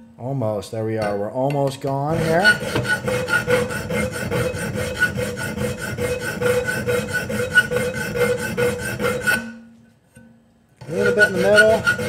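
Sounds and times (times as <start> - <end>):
file rasping on steel: 2.1 - 9.6, 10.8 - 12.0.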